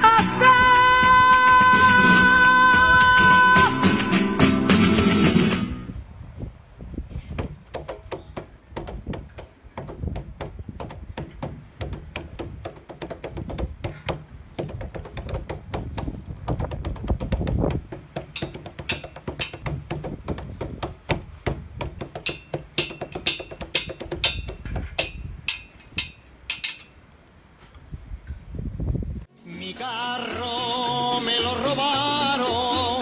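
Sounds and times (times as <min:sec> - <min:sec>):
taps on plastic barrel: 0:07.4 - 0:24.9
metal bars striking machinery: 0:18.3 - 0:19.6, 0:22.2 - 0:27.0.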